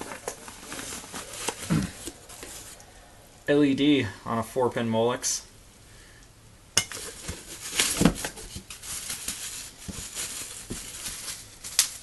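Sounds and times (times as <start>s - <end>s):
bubble wrap crinkling: 0.0s - 2.8s, 6.9s - 12.0s.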